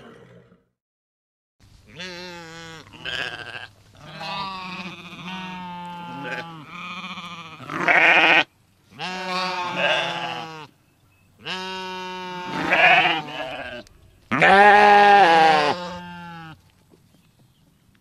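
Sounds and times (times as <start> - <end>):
goat bleating: 1.9 - 10.7, 11.4 - 16.6.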